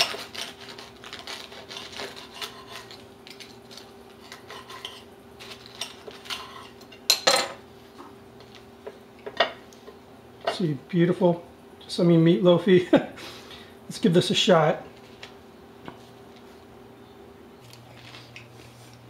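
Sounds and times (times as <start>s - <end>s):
knife sawing through bread: 0.0s - 3.1s.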